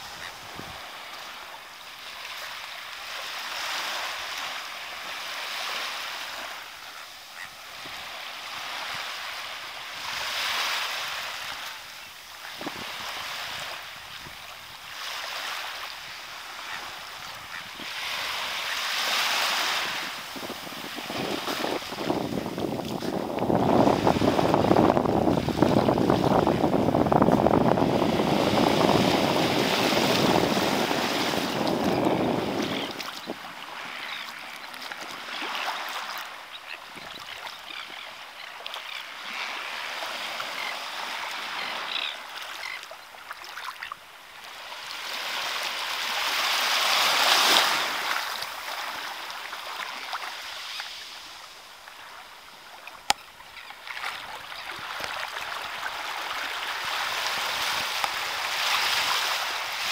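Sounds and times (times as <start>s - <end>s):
small waves lapping on shore: 0.0s - 59.9s
wind buffeting microphone: 19.8s - 34.2s.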